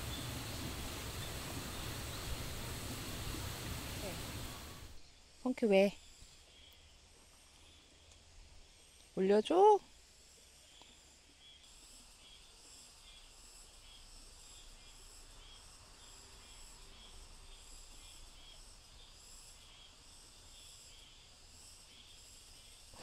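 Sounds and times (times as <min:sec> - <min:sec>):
low steady rumble: 0:00.0 - 0:05.0
faint insects chirping: 0:00.0 - 0:23.0.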